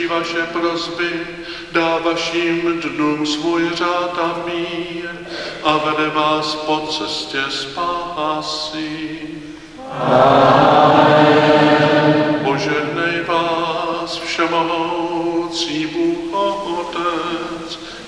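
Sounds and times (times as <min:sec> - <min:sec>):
choir singing response: 0:09.8 - 0:14.8.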